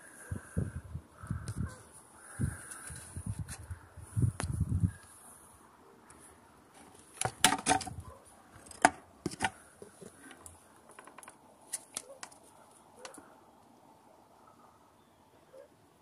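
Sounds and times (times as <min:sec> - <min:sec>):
sharp clicks and knocks: 0:07.1 - 0:08.0, 0:08.6 - 0:12.4.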